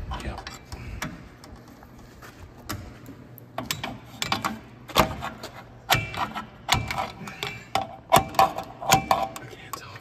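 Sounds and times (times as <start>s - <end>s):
metal tools clicking and clanking: 3.6s - 9.8s.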